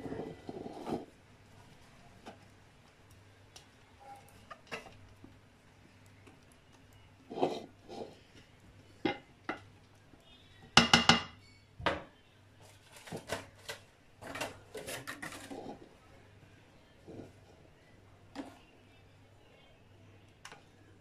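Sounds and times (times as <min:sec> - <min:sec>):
kitchenware knocking and clicking: 0:10.8 - 0:12.1.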